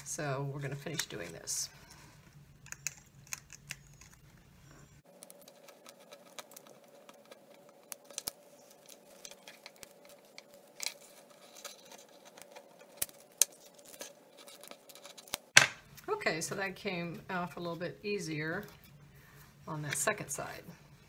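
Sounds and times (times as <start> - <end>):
knife scraping plastic: 5.2 - 15.5.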